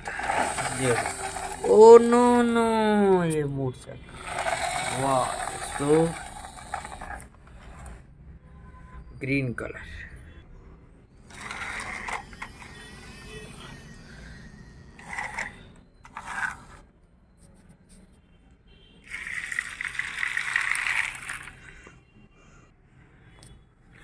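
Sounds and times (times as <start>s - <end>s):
plastic toys rattling and scraping: 0.0s - 2.7s, 4.1s - 8.0s, 11.2s - 13.7s, 14.9s - 16.9s, 19.1s - 21.9s.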